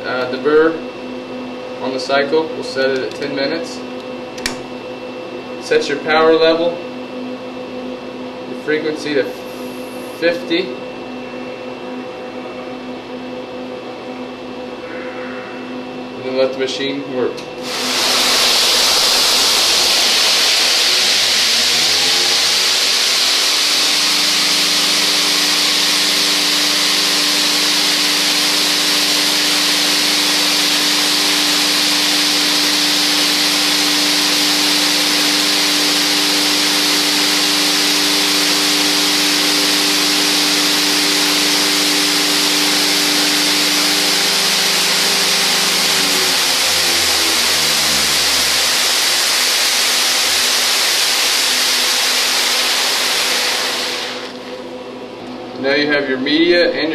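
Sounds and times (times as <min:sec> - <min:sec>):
electric motor hum: 0:06.5 - 0:16.2, 0:17.5 - 0:55.1
water and pins churning hiss: 0:17.6 - 0:23.9.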